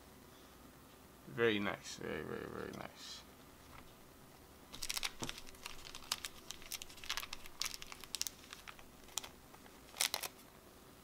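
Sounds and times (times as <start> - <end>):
plastic sleeve crinkling: 4.7 - 10.4.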